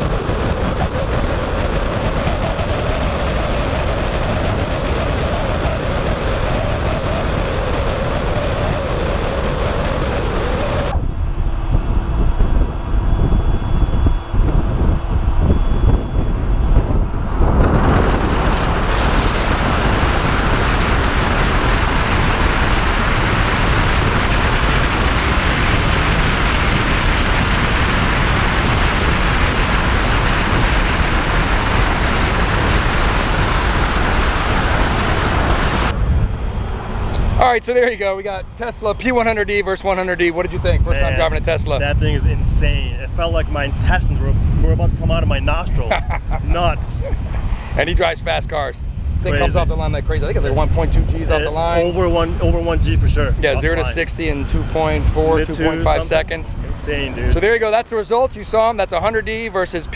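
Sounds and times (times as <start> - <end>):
tyre and road noise: 0.0 - 13.0
wind rushing over camera: 0.0 - 59.9.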